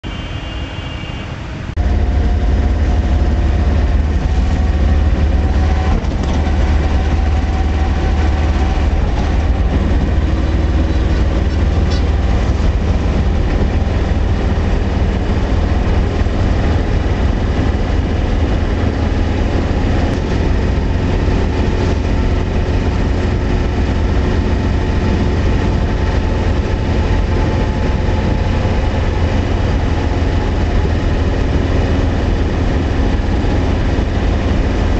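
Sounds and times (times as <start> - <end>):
truck cab engine and road drone: 0.0 - 34.9.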